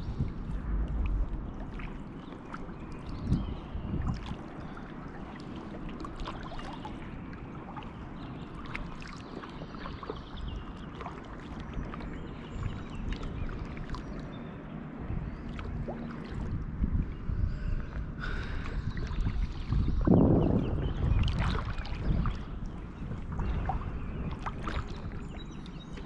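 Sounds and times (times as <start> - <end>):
paddle blades splashing: 0.0 - 20.2, 21.0 - 26.0
steady low rumble: 0.0 - 26.0
water drips: 0.2 - 14.3.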